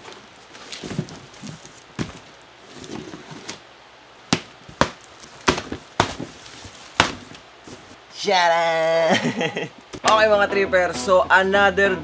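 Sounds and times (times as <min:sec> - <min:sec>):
cardboard rustling: 0:00.0 - 0:03.6, 0:04.6 - 0:08.0
cardboard box set down: 0:00.6 - 0:03.6
dull thuds: 0:04.3 - 0:06.4, 0:07.0 - 0:08.0.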